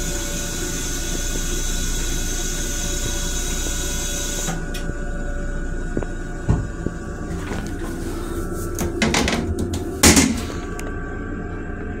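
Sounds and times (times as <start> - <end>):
low rumble: 4.9 - 9.1.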